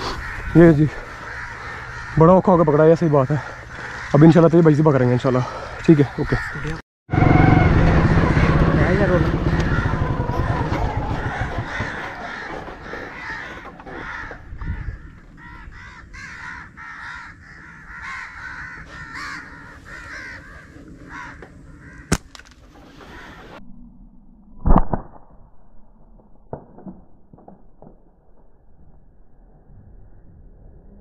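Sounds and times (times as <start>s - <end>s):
birds calling: 0.0s - 6.8s, 7.9s - 23.6s.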